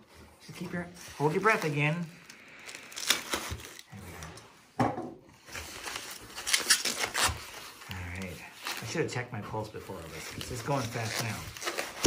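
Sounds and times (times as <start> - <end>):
foam wrapping rustling and crinkling: 0.0 - 4.4, 5.4 - 12.0
scratchy rips: 1.2 - 3.9, 5.7 - 9.0, 10.1 - 12.0.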